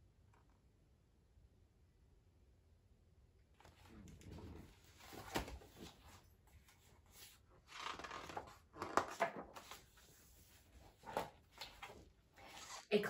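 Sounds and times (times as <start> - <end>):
book pages rustling: 3.6 - 13.0.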